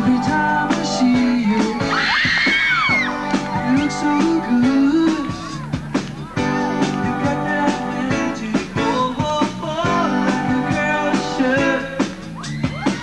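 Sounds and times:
male singer: 0.0s - 2.3s, 3.5s - 5.7s, 6.4s - 13.0s
electric guitar chords: 0.0s - 12.3s
steady drum beat: 0.0s - 13.0s.

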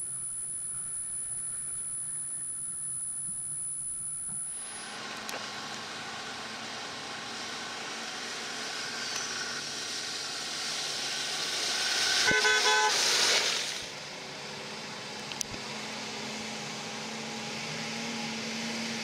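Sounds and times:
car horn toot: 12.2s - 13.0s.

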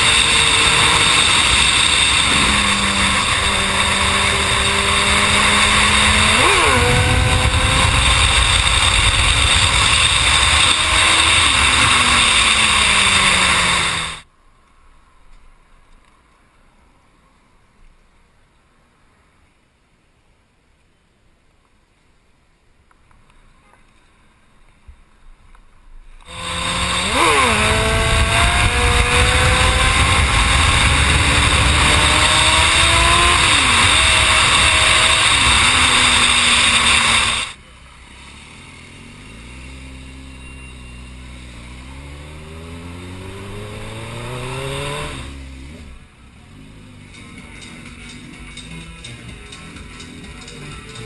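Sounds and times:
wind noise: 0.0s - 14.2s, 24.8s - 37.5s
motorcycle engine accelerating: 0.0s - 14.3s, 26.2s - 51.0s.

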